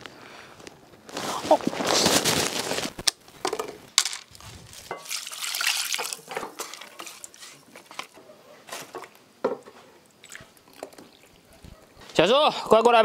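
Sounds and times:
plastic bag rustling: 0.6 - 9.1
utensils clinking on a pan: 4.0 - 5.3, 5.9 - 7.5
liquid bubbling in a pan: 4.9 - 7.9.

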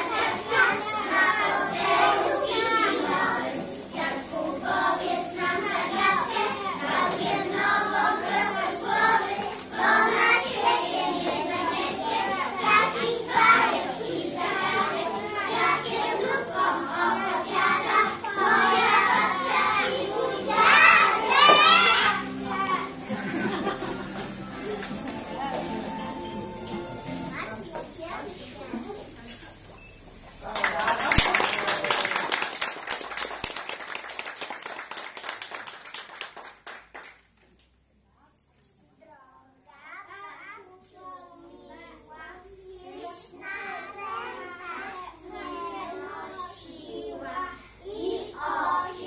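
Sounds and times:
children singing: 0.0 - 27.6, 42.9 - 49.0
audience applauding: 30.4 - 37.3.

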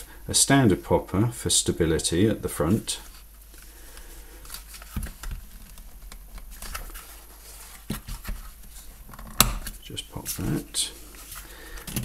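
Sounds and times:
strap rustling and scratching: 4.3 - 12.0.

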